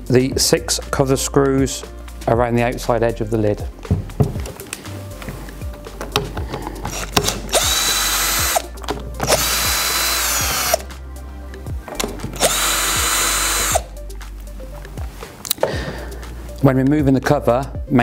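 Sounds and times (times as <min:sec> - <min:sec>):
cordless drill unscrewing: 0:06.0 - 0:10.9, 0:11.9 - 0:13.8.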